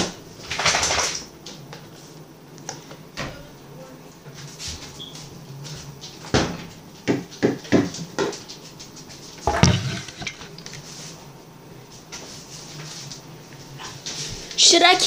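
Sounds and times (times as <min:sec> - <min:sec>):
dishes clattering: 0:09.4 - 0:10.7.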